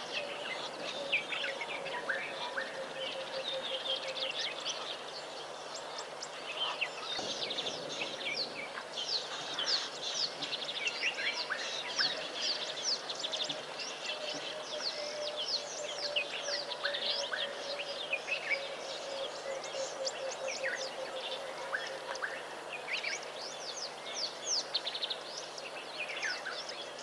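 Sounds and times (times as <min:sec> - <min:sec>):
small birds chirping: 0:00.0 - 0:27.0.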